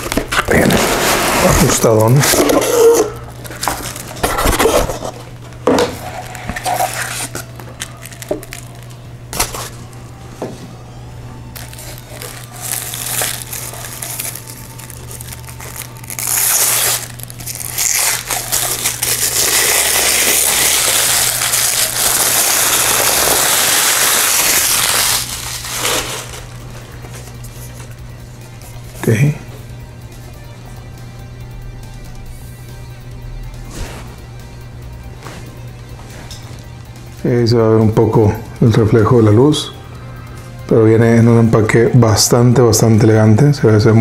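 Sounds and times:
wrapping crinkling and rustling: 0:00.0 - 0:10.0, 0:11.5 - 0:28.0, 0:35.9 - 0:36.9.

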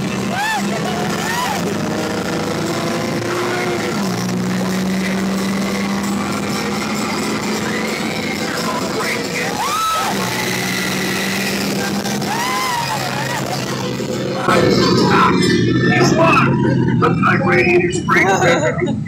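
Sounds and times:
ride car running on track: 0:00.0 - 0:19.0
riders whooping: 0:00.0 - 0:19.0.

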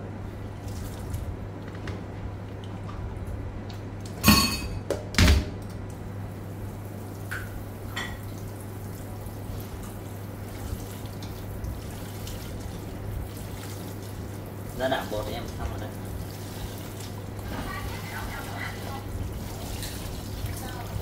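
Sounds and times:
hands squeezing and rinsing in water: 0:00.4 - 0:01.8, 0:08.2 - 0:21.0
metal pot clanking in sink: 0:04.2 - 0:04.8
tap water running into pot: 0:07.1 - 0:21.0.

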